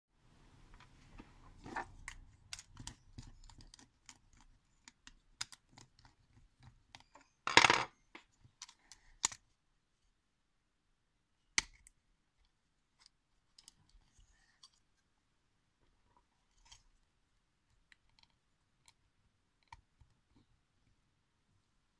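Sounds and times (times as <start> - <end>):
plastic toy parts clicking: 2.5 - 6.2, 8.6 - 9.4.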